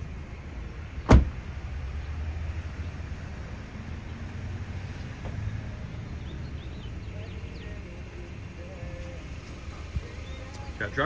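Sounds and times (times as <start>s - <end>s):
low outdoor rumble: 0.0s - 11.0s
car door shutting: 1.0s - 1.4s.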